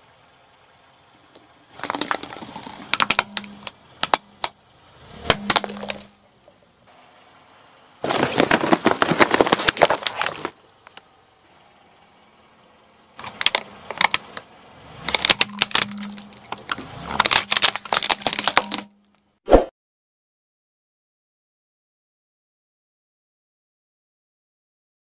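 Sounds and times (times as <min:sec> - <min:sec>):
plastic cracking under wheel: 0:01.7 - 0:04.6, 0:05.3 - 0:06.1, 0:08.0 - 0:11.1, 0:13.2 - 0:14.4, 0:15.0 - 0:19.0
cardboard box crumpling: 0:01.8 - 0:03.1, 0:08.0 - 0:10.6, 0:15.1 - 0:18.8.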